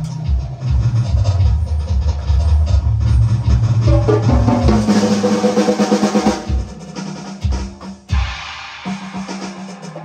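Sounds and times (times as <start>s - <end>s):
heavy bass drum hits: 0.7s - 8.6s
cymbal wash: 3.4s - 10.0s.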